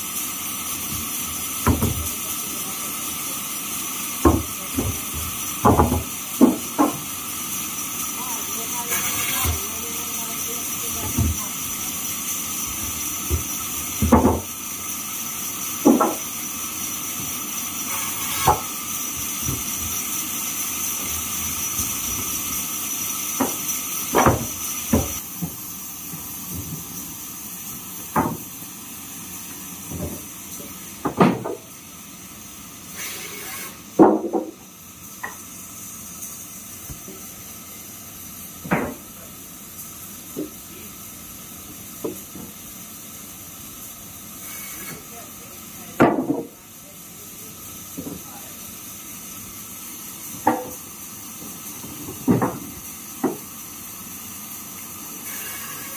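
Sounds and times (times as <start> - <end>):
sawmill background hiss: 0.0 - 55.9
wooden planks knocking: 4.2 - 7.0, 13.3 - 14.5, 15.8 - 16.2, 23.4 - 25.6, 28.1 - 28.4, 31.0 - 31.6, 34.0 - 34.5, 52.1 - 53.4.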